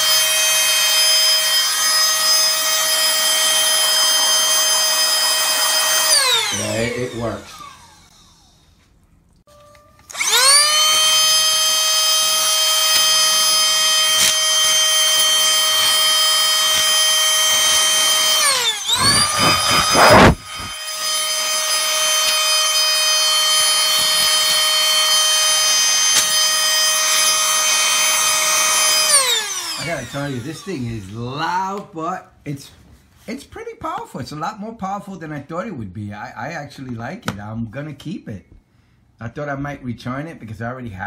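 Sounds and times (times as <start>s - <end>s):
air duster motor whining: 0.0s - 9.0s, 9.6s - 31.4s
rushing burst of air: 19.0s - 20.8s.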